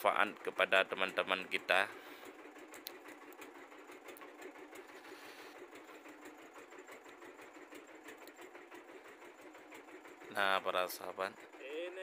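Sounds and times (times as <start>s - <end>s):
small boat engine running: 0.0s - 12.0s.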